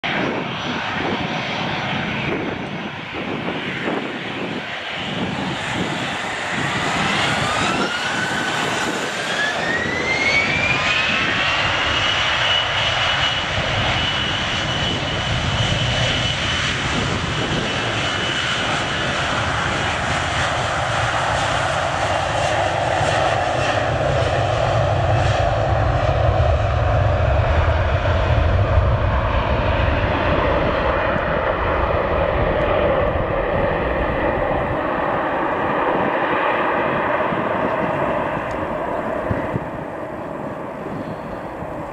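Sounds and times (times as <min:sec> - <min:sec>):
deep rumble of airliner rolling: 0:00.0 - 0:41.9
jet engines spooling up: 0:00.1 - 0:41.9.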